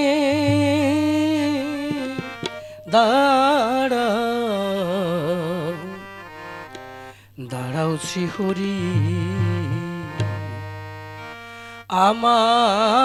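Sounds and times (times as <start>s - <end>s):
person singing devotional song: 0.0s - 13.0s.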